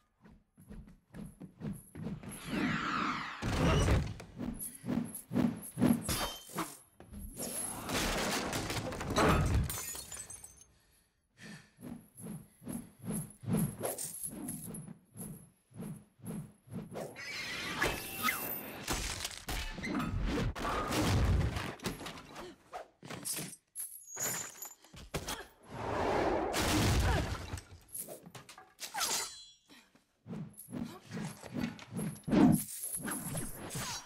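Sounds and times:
chain clattering: 23.1 - 25.0.

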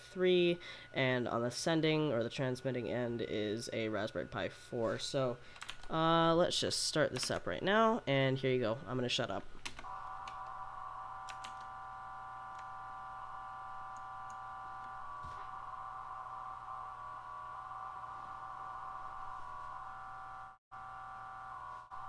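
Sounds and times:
buzzy modem data tones: 9.8 - 22.0.

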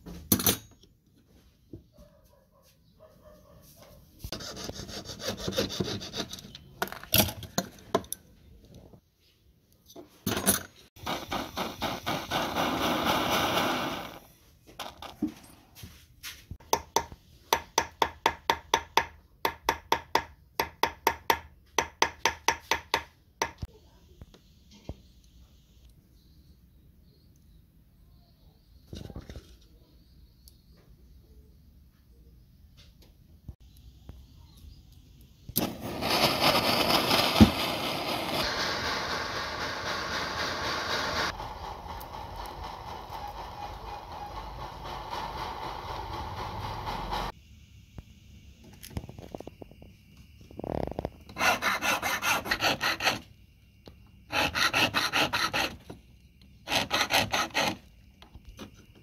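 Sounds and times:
gas torch hissing: 11.0 - 14.4, 35.4 - 47.4.

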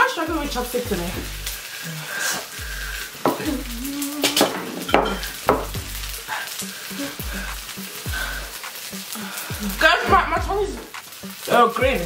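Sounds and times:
person humming: 1.8 - 5.3, 6.2 - 10.2.

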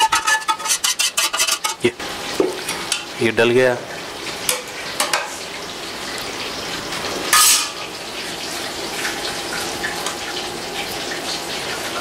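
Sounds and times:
metal spoon scraping a pot: 0.0 - 1.9, 7.3 - 7.8.

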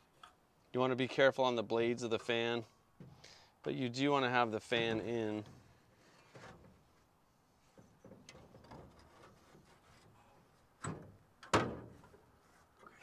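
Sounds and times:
metal clicks and scrapes: 8.3 - 10.2.

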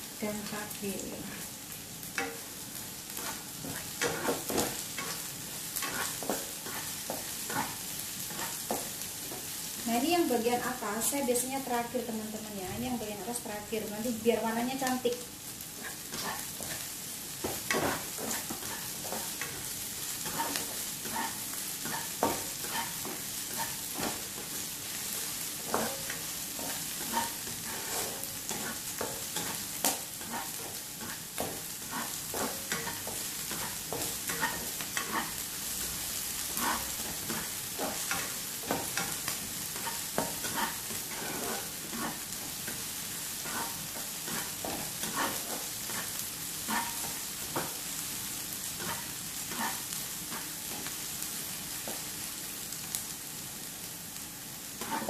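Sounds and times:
vegetables sizzling in hot oil: 0.0 - 55.0
spatula scraping a wok: 3.2 - 9.6, 15.8 - 47.8, 48.7 - 50.9, 54.8 - 55.0.

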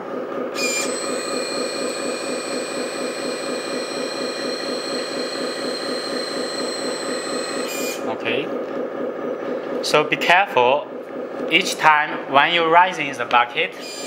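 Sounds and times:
hydraulic pump whine: 0.0 - 8.4, 13.8 - 14.0.

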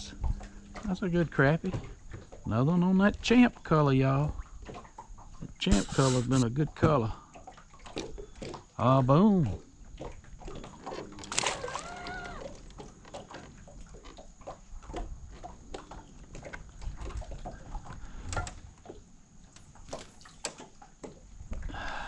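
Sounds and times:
tackle clicks and knocks on a boat: 0.1 - 21.8
fish splashing in water: 9.5 - 19.0, 19.7 - 21.3.

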